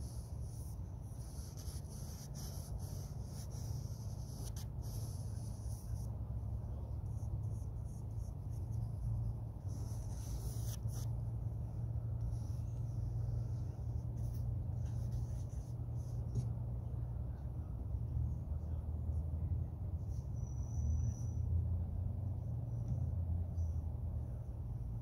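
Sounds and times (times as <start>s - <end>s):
paintbrush scratchy strokes: 0.0s - 16.5s
steady low rumble: 0.0s - 20.1s.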